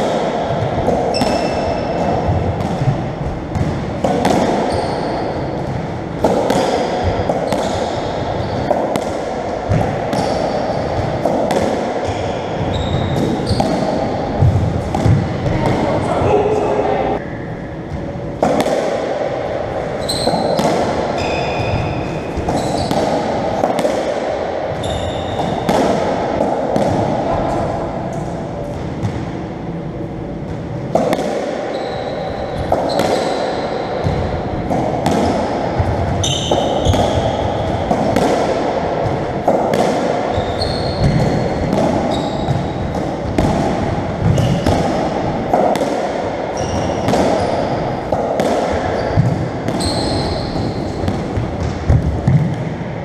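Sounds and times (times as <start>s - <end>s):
ball hitting rackets and walls: 0.0s - 16.1s, 17.7s - 53.0s
shoes squeaking on wooden floor: 49.0s - 50.5s.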